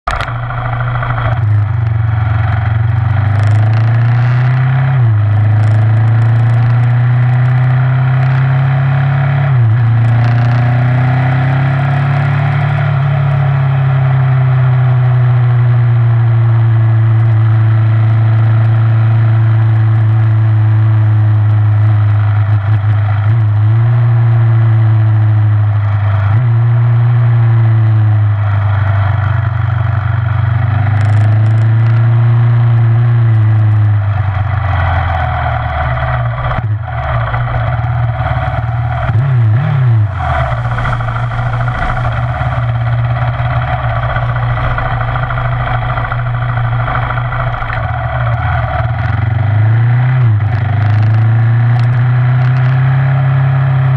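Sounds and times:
motorcycle engine running: 0.0s - 53.9s
wind noise on microphone: 32.8s - 52.8s.

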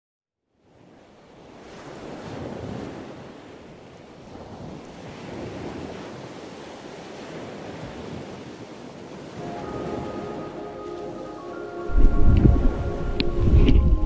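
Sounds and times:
wind on microphone: 11.9s - 14.0s.

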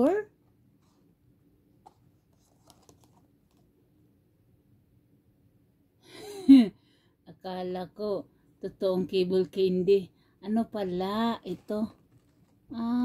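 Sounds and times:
light clicks of card handling: 1.8s - 3.7s.

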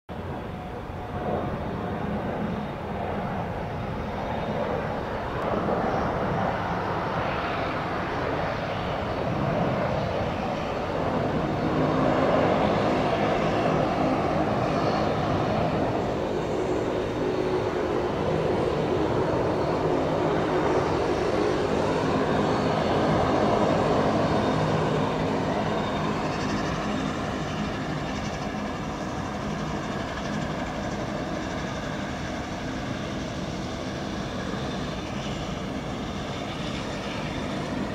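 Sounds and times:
aircraft engines whining: 0.1s - 37.9s
turboprop engines taxiing: 0.1s - 37.9s.

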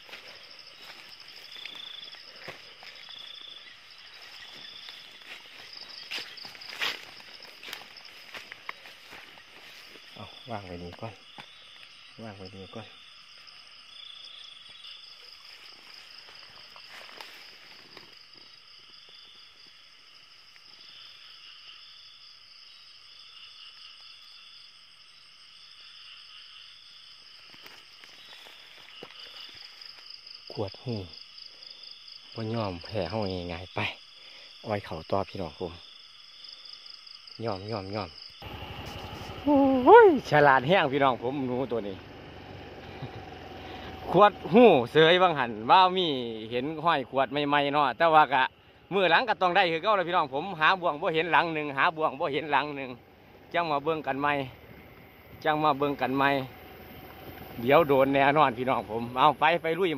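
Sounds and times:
rustling through wet grass: 0.0s - 11.8s, 14.8s - 18.6s, 27.3s - 30.4s, 38.4s - 40.3s
insect pulsed trill: 0.0s - 59.9s
insects buzzing: 0.0s - 59.9s.

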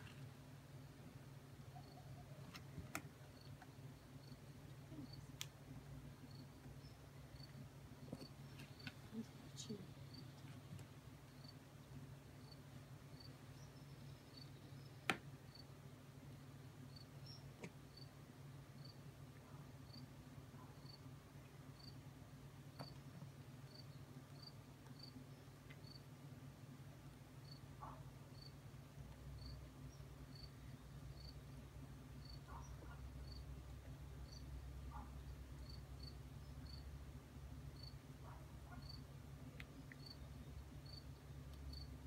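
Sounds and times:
low background hum: 0.0s - 42.0s
cricket chirping: 1.7s - 2.2s, 3.3s - 5.2s, 6.2s - 9.0s, 11.3s - 11.6s, 12.3s - 14.9s, 15.5s - 15.7s, 16.9s - 18.1s, 18.8s - 21.0s, 21.8s - 22.0s, 23.7s - 25.2s, 25.8s - 26.0s, 27.4s - 28.6s, 29.4s - 31.4s, 32.2s - 33.4s, 34.2s - 36.9s, 37.8s - 39.1s, 39.9s - 41.1s, 41.7s - 41.9s.

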